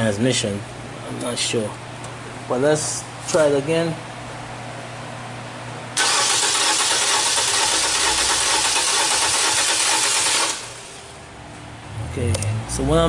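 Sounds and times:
car engine cranking without starting: 6.0s - 10.9s.

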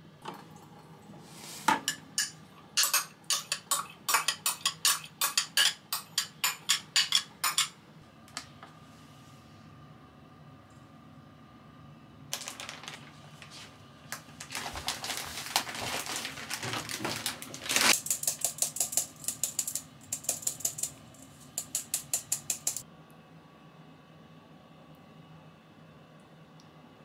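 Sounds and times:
plastic bag rustling: 12.3s - 18.1s
utensil clicking against bowl: 17.9s - 22.8s.

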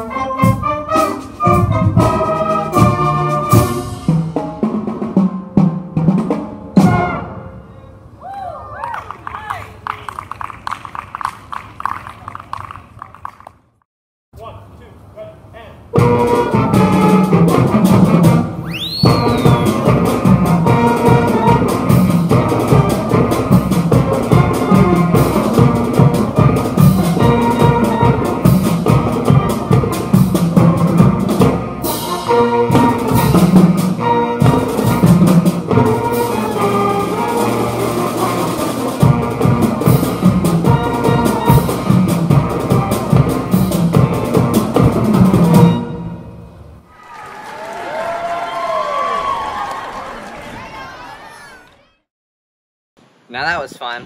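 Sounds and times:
brass band music with drums: 0.0s - 7.8s, 15.4s - 46.8s
sliding whistle-like tone: 18.6s - 19.9s.

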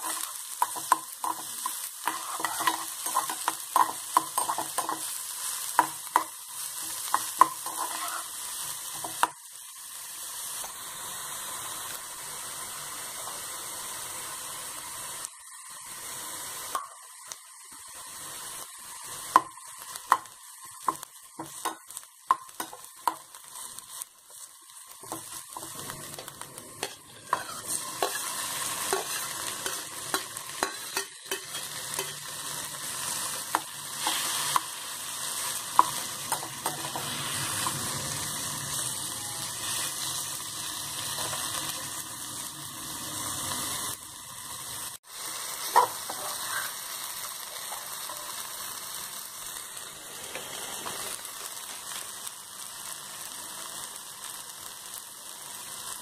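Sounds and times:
spatula scraping and tapping pan: 0.0s - 5.1s, 5.7s - 8.3s, 25.0s - 32.3s
onions sizzling in hot oil: 0.0s - 56.0s.

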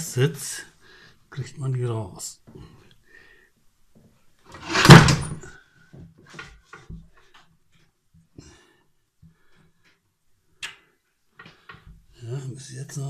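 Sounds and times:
loud metal creak: 4.6s - 5.5s.

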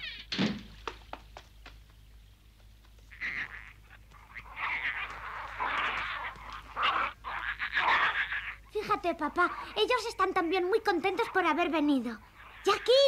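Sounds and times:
cartoon bear cubs calling: 3.1s - 13.0s.

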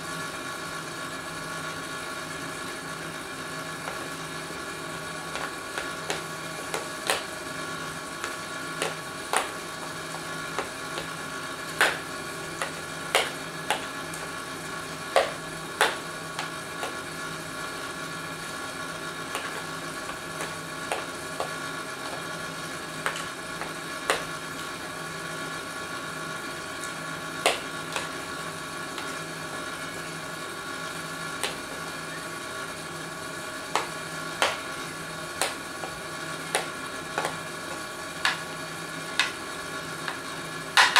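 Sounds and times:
electrical hum: 0.0s - 40.9s.

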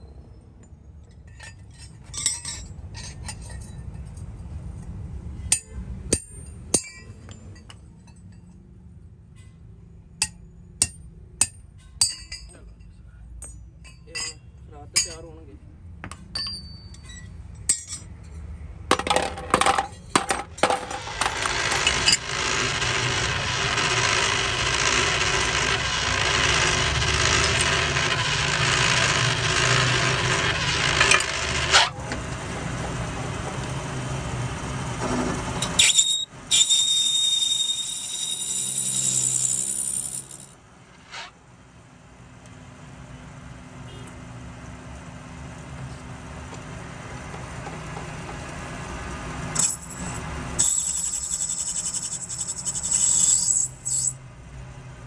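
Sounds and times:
hammer clinking on metal: 16.1s - 18.1s
lathe high whine: 21.2s - 31.8s
metal lathe cutting: 21.2s - 31.8s.

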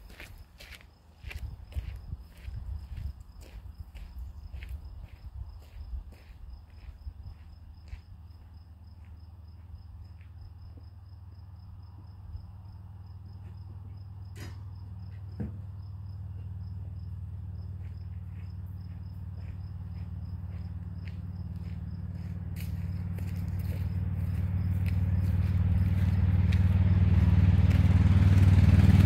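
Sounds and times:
insect chirping: 0.0s - 26.8s
low engine hum: 0.0s - 29.0s.

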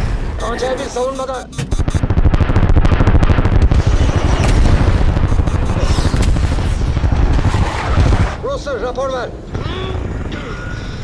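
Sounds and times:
fighter jets in flight: 0.0s - 11.0s
missile blasts: 1.7s - 8.6s
crackle of flares firing: 1.8s - 8.5s.

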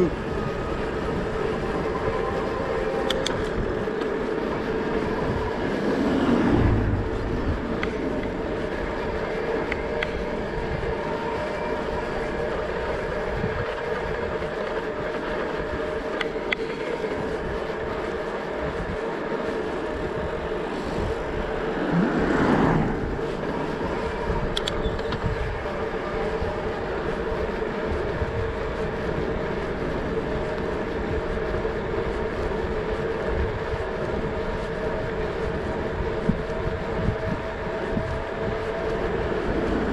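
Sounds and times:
road rumble: 0.0s - 39.9s
wind noise: 0.0s - 39.9s.

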